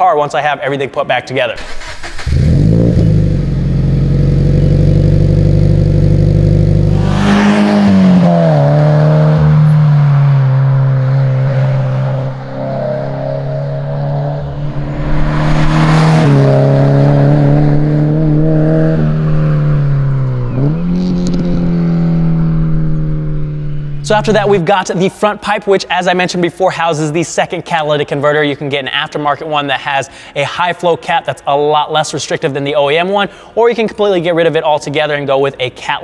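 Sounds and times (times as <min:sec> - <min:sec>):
car engine idling: 0:01.6 - 0:08.2, 0:08.8 - 0:24.7
car exhaust while driving: 0:02.2 - 0:24.6.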